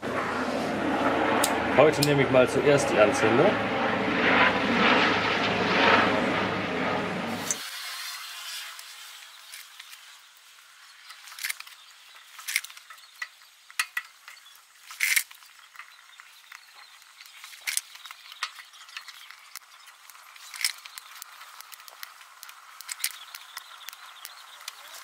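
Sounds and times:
kindling crackling in fire: 8.6s - 25.0s.

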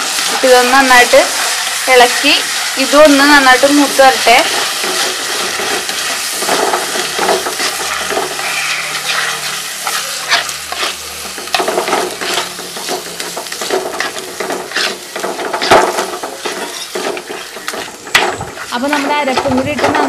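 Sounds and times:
paste sizzling in a pot: 0.0s - 20.0s
spoon scraping a pot: 4.4s - 19.2s.

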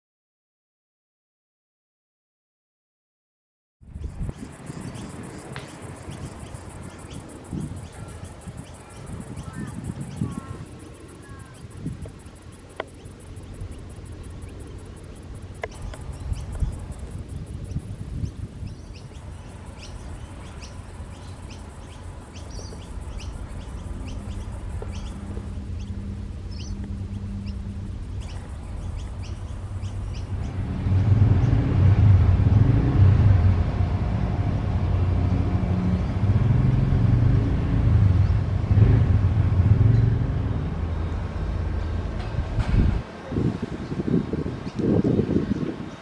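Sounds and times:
diesel locomotive engine throbbing: 3.8s - 46.0s
birds chirping: 3.9s - 32.8s.

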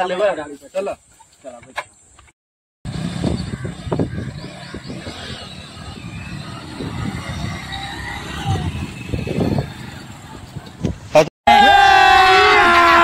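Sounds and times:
motorcycle engines running: 2.9s - 11.1s.

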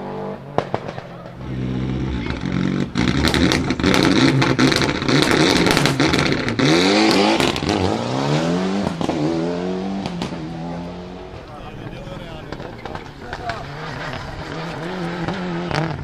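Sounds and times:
rally car engine revving: 0.0s - 16.0s
exhaust cracks and pops: 2.0s - 7.8s, 11.3s - 16.0s.

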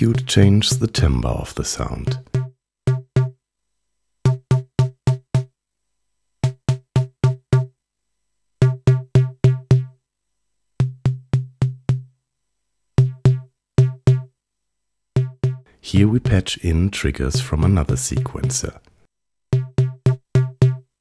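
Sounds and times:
synthesized drum hits: 2.1s - 3.4s, 15.2s - 16.4s, 19.5s - 20.8s.

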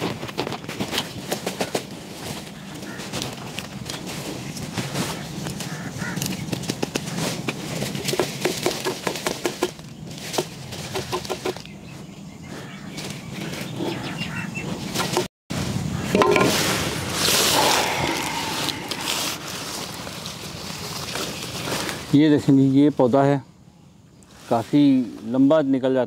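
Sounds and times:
rustling of roots and soil: 16.5s - 23.2s, 24.3s - 25.9s.

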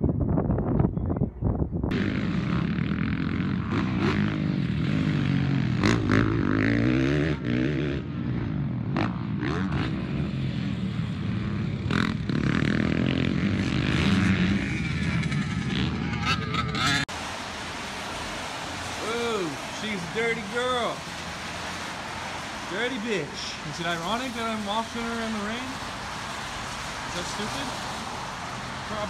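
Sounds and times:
wind on microphone: 0.0s - 2.7s
dirt bike engine revving: 1.9s - 17.1s, 18.5s - 29.0s.

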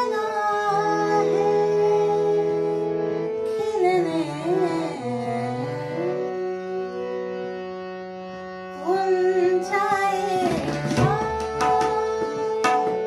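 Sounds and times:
tabla drumming: 9.9s - 13.0s.

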